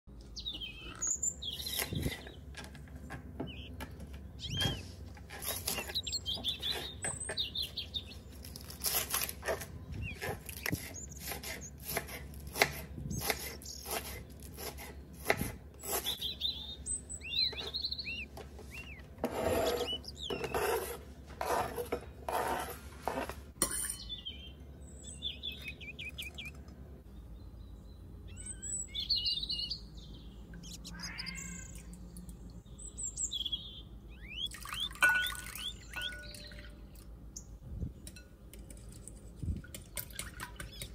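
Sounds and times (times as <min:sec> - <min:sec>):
small birds chirping: 0:00.1 - 0:21.0, 0:24.0 - 0:40.9
blade scraping cutting board: 0:08.6 - 0:16.3, 0:18.6 - 0:23.5.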